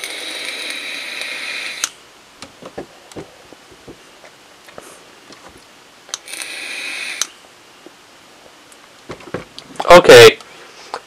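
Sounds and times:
vape coil hissing: 0.0 - 2.0, 6.2 - 7.4.

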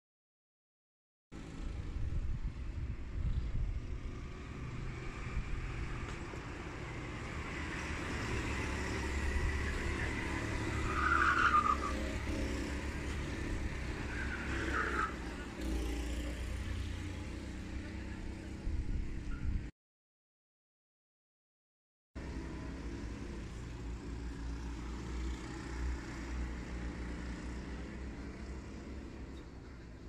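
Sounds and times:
distant go-kart engines: 1.4 - 19.7, 22.2 - 30.0
tyre squeals: 10.8 - 12.0.

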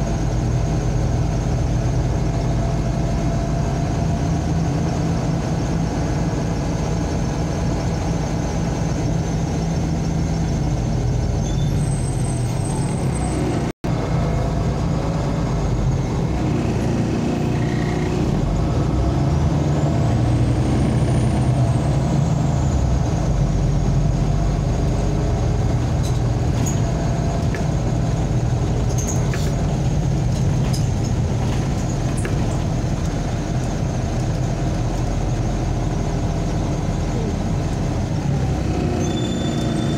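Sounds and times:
bus engine hum: 0.0 - 39.9
road noise: 0.0 - 39.9.

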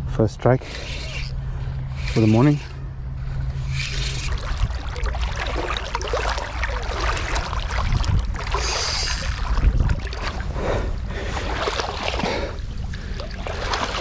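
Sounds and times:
shallow water splashing: 3.6 - 14.0.

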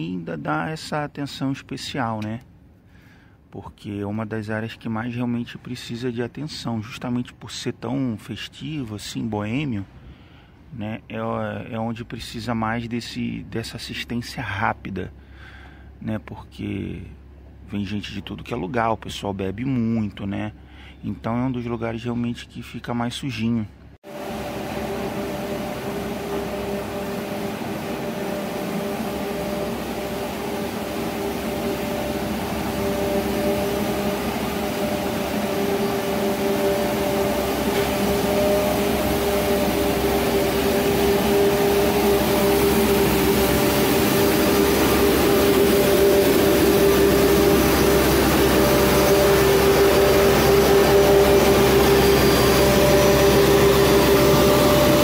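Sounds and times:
street sweeper whining: 24.0 - 55.0.

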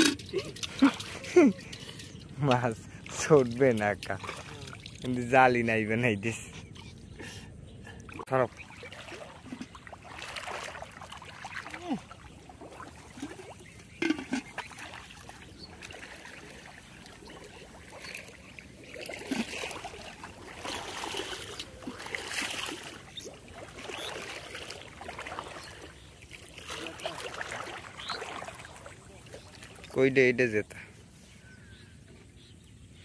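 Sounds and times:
muddy water sloshing: 0.0 - 31.4.

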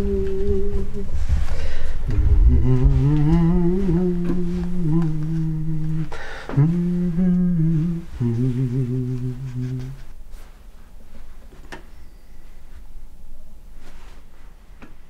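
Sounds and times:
man humming a slow tune: 0.0 - 10.5.

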